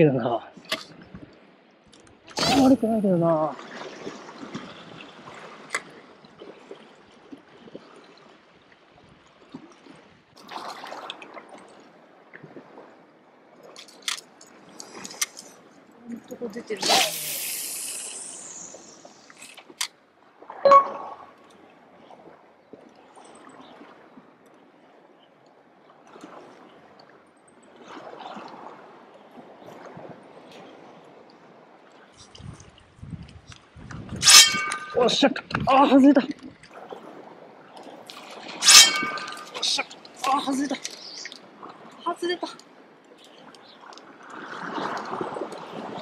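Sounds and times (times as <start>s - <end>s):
seawater washing among rocks: 34.1s - 35.4s, 36.7s - 46.0s
sea water washing against rocks: 38.1s - 41.9s.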